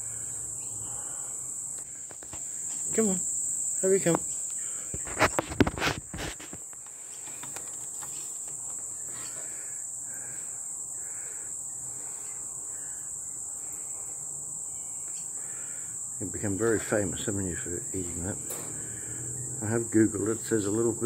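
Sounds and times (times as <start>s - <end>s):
high-pitched insect drone: 0.0s - 21.0s
bird wing flaps: 4.9s - 8.8s.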